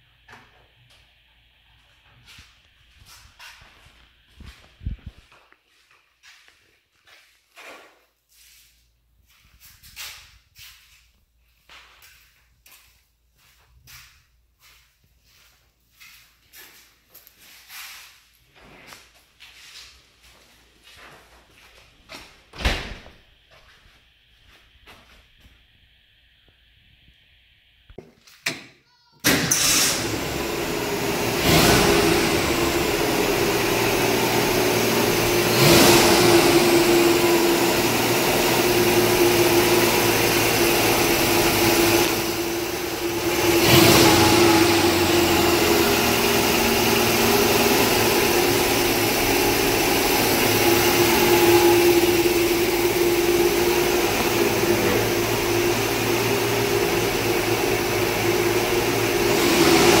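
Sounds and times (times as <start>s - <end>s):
truck engine running: 29.6s - 60.0s.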